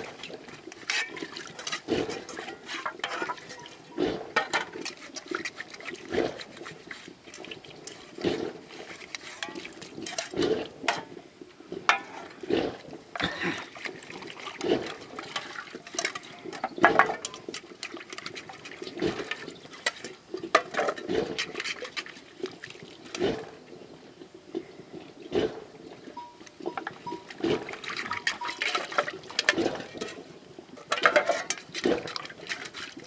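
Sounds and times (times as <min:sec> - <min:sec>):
metal bowls clinking: 0:00.0 - 0:06.5, 0:09.0 - 0:11.2, 0:11.9 - 0:12.3, 0:14.3 - 0:22.0, 0:26.2 - 0:33.0
water sloshing and pouring: 0:00.0 - 0:24.0, 0:25.5 - 0:33.0.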